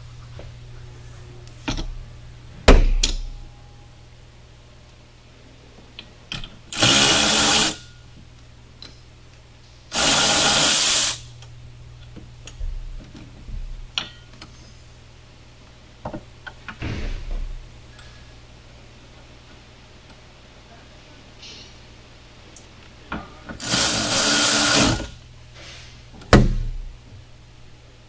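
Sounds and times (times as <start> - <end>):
electric ratchet whirring: 6.7 - 7.8, 9.9 - 11.3, 23.6 - 25.1.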